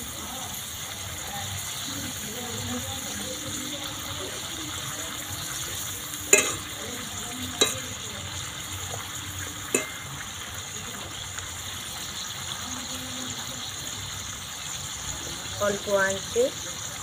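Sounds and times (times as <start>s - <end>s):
food deep-frying in oil: 0.0s - 17.0s
metal spoon clicking against pan: 6.3s - 6.7s, 7.6s - 8.0s, 9.8s - 10.2s.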